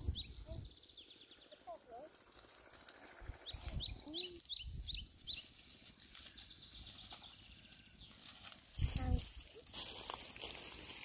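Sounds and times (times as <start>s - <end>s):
bird chirping: 0.0s - 8.4s
outdoor background noise: 0.0s - 11.0s.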